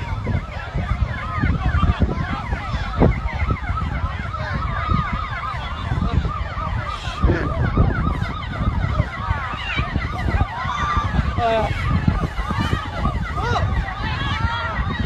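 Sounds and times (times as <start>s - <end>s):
emergency sirens yelping: 0.0s - 15.0s.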